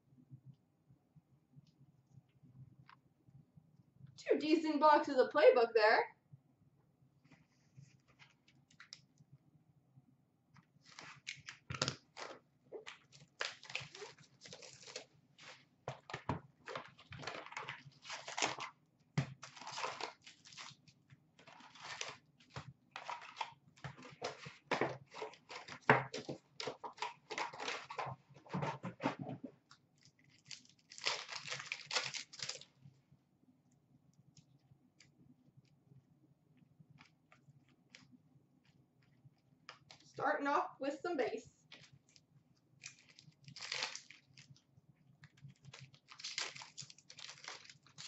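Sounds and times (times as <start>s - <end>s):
wrappers ripping and crinkling: 10.8s - 28.1s, 30.0s - 32.7s, 42.8s - 44.6s, 45.5s - 48.0s.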